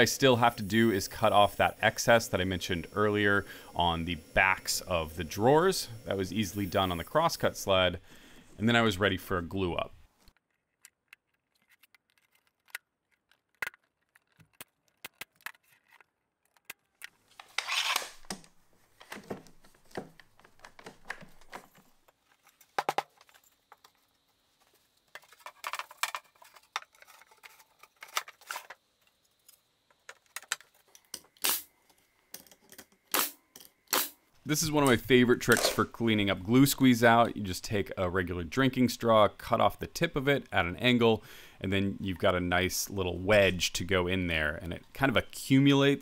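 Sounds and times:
wooden parts clicking and knocking: 10.4s - 17.2s, 18.2s - 24.4s, 25.0s - 31.4s
brief wood scraping: 17.4s - 18.2s.

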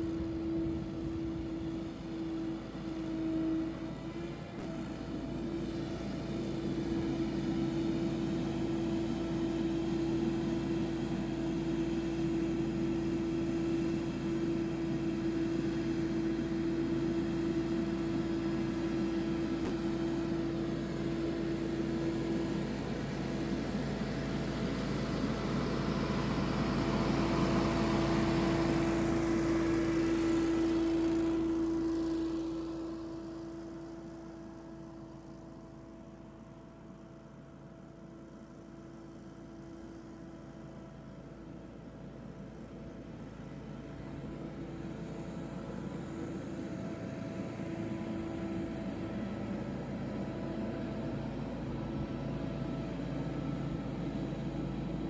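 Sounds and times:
leaf blower running: 4.6s - 36.3s.

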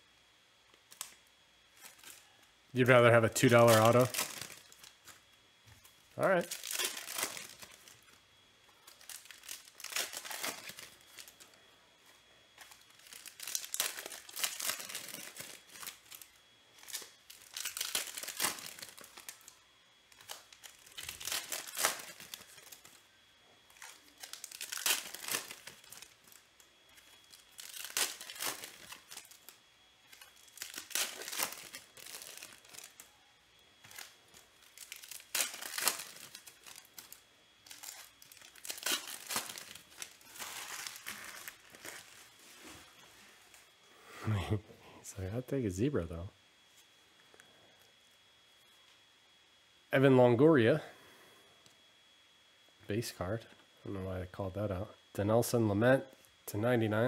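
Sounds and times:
card pack wrappers crinkling and tearing: 0.8s - 42.6s
cards rustling: 1.8s - 5.2s, 6.2s - 8.1s, 8.7s - 11.5s, 12.1s - 19.5s, 20.1s - 23.0s, 23.7s - 29.5s, 30.1s - 33.2s, 33.8s - 42.8s.

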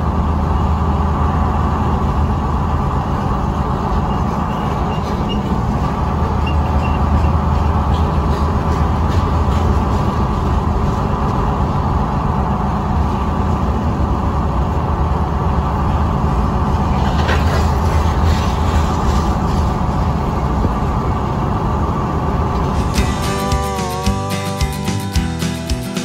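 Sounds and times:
car road noise: 0.0s - 26.0s
freight train cars rumbling: 0.0s - 26.0s.

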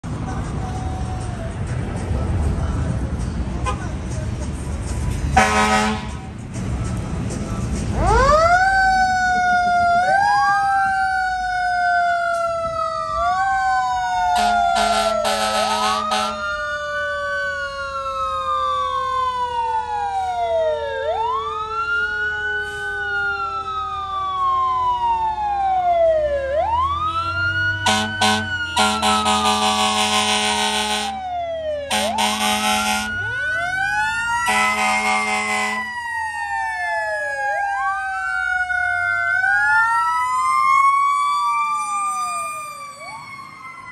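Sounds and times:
air horn blasts: 5.4s - 6.3s, 14.4s - 16.4s, 27.1s - 31.2s, 31.9s - 33.2s, 34.4s - 36.0s
electronic siren wailing: 8.0s - 43.9s
mechanical siren winding down: 8.0s - 43.9s.

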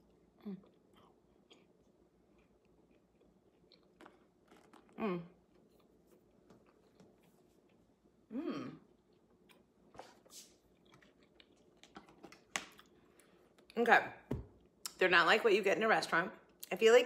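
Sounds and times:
person chewing: 0.0s - 8.0s, 8.8s - 13.7s.

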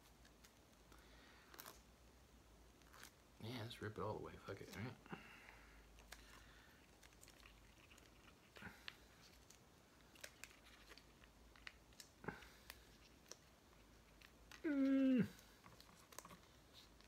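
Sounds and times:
plastic packet crinkling: 6.0s - 14.7s, 15.4s - 17.0s.

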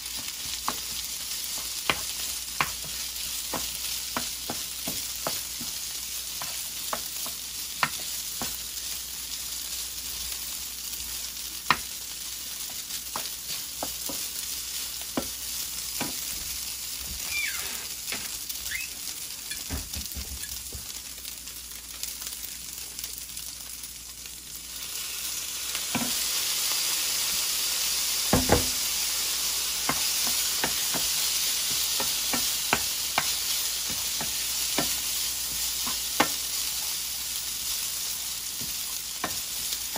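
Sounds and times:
fried rice sizzling in pan: 0.0s - 39.9s
spatula tapping and scraping pan: 0.1s - 8.7s, 11.6s - 11.9s, 12.5s - 16.3s, 25.9s - 26.2s, 29.8s - 36.5s, 38.5s - 39.9s.

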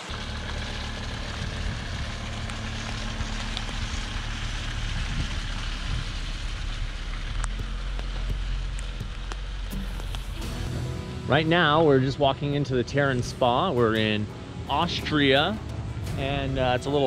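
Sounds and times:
low engine hum: 0.0s - 17.0s
tyres hissing on wet ground: 0.0s - 17.0s.

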